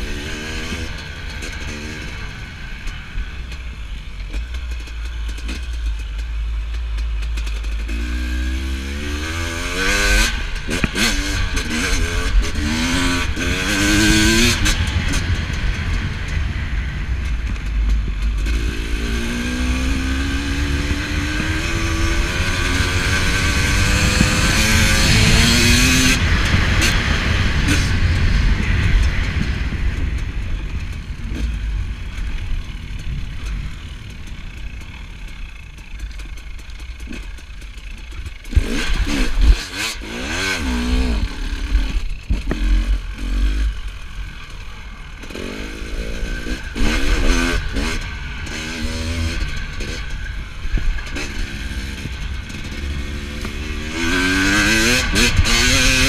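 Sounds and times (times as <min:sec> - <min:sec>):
dirt bike engine revving: 0:00.0 - 0:56.0
wind rumble on microphone: 0:09.2 - 0:35.3.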